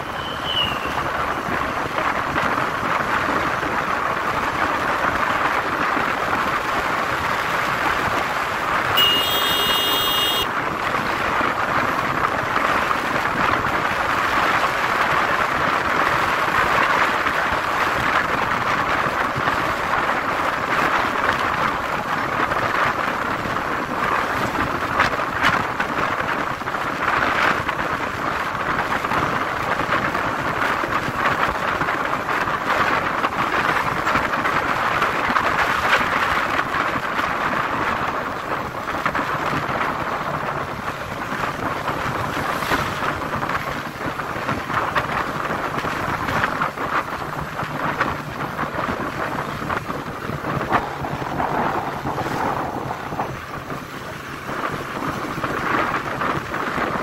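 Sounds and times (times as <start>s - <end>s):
motorcycle engine running: 8.4s - 10.5s, 39.4s - 55.6s
wind buffeting microphone: 10.5s - 57.0s.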